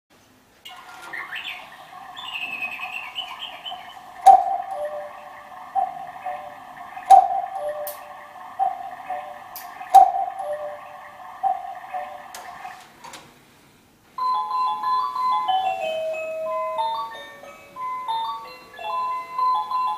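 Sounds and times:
electronic cuckoo call: 0.7s - 13.0s
high bird-like chirps: 0.7s - 13.0s.

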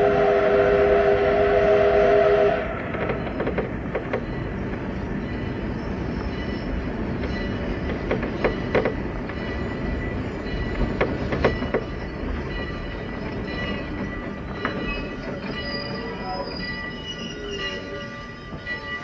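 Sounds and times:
passenger train rumbling: 0.0s - 19.0s
wheels knocking over rail joints: 7.2s - 9.6s, 10.6s - 15.6s.

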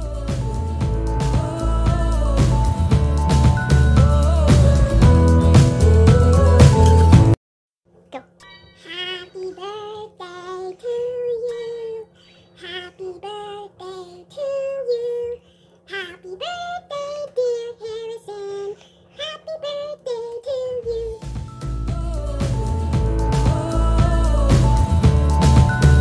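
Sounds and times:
girl singing: 8.1s - 21.3s.

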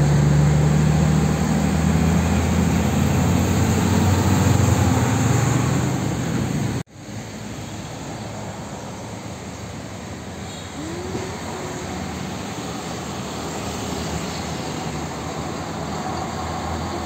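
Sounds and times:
street traffic hum: 0.0s - 17.0s
truck engine hum and tyres: 0.0s - 17.0s.

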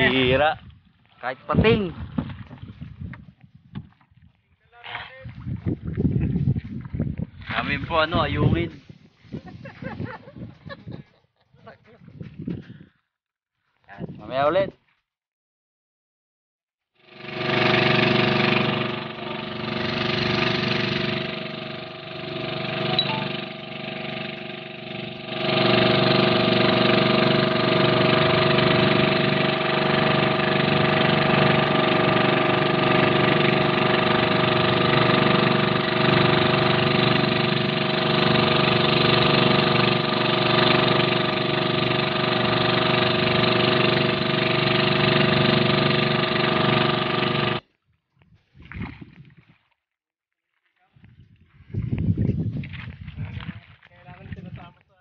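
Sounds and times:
boat engine running: 0.0s - 0.5s, 17.0s - 47.6s.

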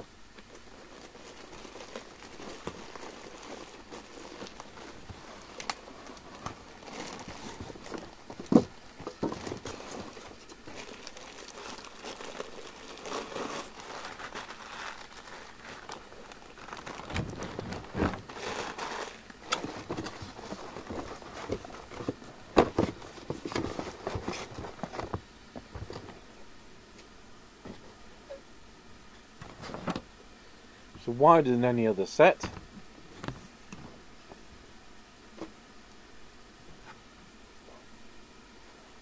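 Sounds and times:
plastic bag crinkling: 0.5s - 22.1s
knocks of packing and box: 2.3s - 11.0s, 16.6s - 26.2s.

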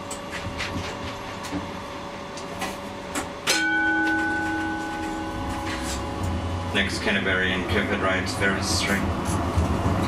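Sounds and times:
tram humming: 1.6s - 10.0s
bell-like ding: 3.5s - 6.4s.

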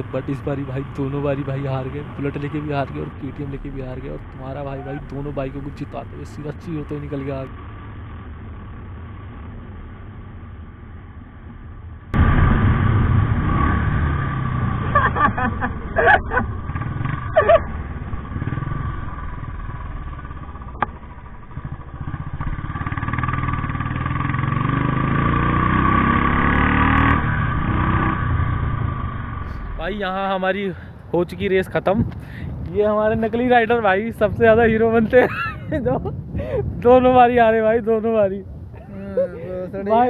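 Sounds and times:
motorcycle engine revving: 0.0s - 30.2s.

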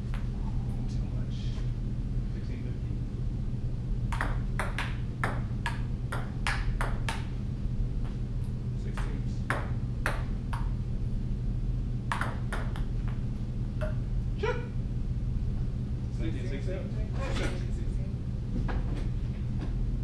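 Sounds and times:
low hum: 0.0s - 16.2s
table tennis ball clicking: 4.1s - 7.2s.

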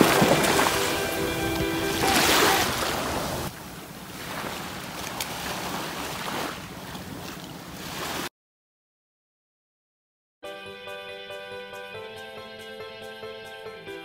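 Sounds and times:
waves washing on pebbles: 0.0s - 3.5s, 4.1s - 8.3s
water swirling around feet: 0.0s - 8.3s.

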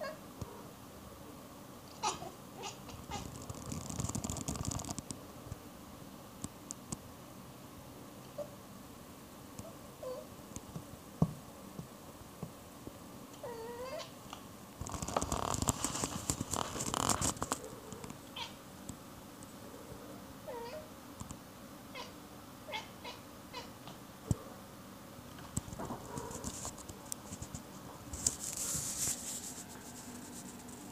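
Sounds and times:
cat chirping: 2.0s - 3.3s, 18.4s - 18.6s
loud rustling: 14.8s - 18.2s.

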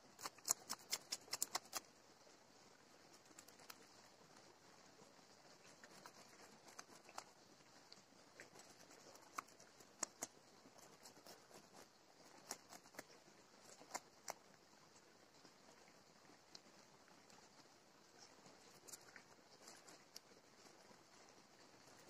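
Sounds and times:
faint high hiss: 0.0s - 22.0s
knife scraping fish scales: 0.1s - 1.9s.

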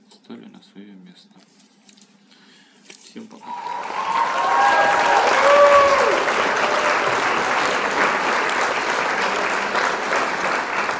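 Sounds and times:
crowd cheering: 3.4s - 10.9s
crowd clapping: 3.4s - 10.9s.

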